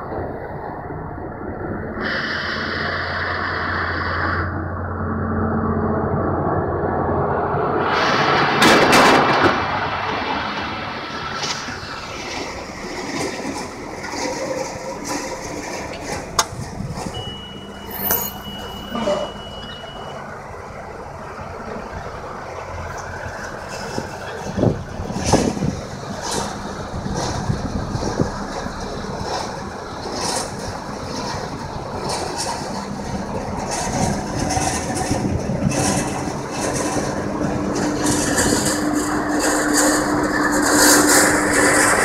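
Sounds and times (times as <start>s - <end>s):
tractor engine drone: 0.0s - 42.0s
thin high steady tone: 17.1s - 21.0s
knocks and rattles: 23.6s - 42.0s.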